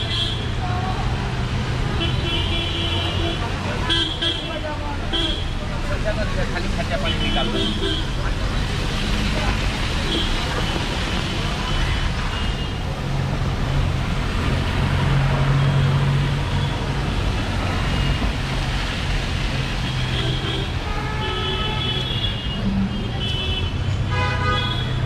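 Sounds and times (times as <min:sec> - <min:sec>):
vehicle horns tooting: 0:01.9 - 0:05.6, 0:06.9 - 0:08.2, 0:19.8 - 0:25.0.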